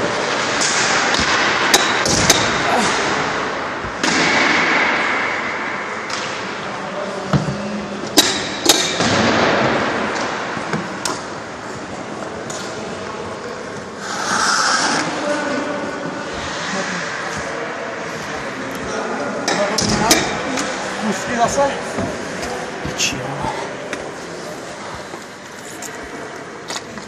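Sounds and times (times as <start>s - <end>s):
ice rink noise: 0.0s - 27.0s
hiss: 14.0s - 15.0s.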